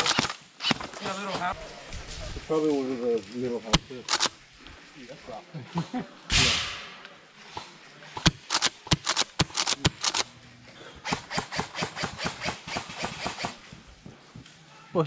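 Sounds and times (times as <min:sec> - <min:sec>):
airsoft gunfire: 0:11.0 - 0:13.7.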